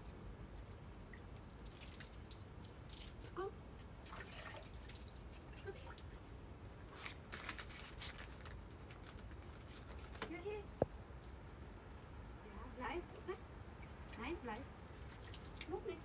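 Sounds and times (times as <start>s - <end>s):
water dripping and splashing: 0.6s - 6.4s, 10.6s - 12.2s, 13.4s - 16.0s.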